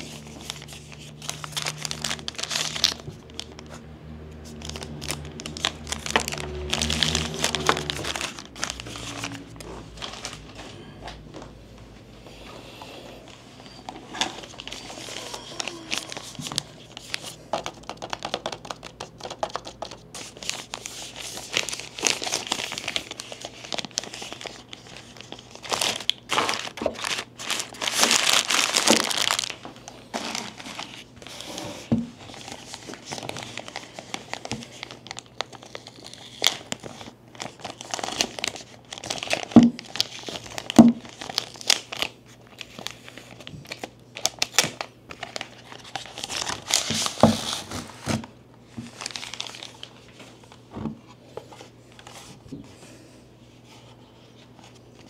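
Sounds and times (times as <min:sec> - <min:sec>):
packaging tearing: 0:00.0 - 0:03.8, 0:04.4 - 0:10.6, 0:13.9 - 0:31.6, 0:32.2 - 0:48.3, 0:48.9 - 0:50.0
packaging crinkling and rustling: 0:00.0 - 0:11.5, 0:13.2 - 0:52.7.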